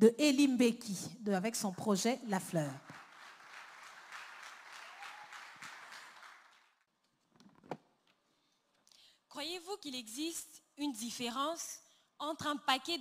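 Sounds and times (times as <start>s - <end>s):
audience applauding: 2.8s - 6.8s.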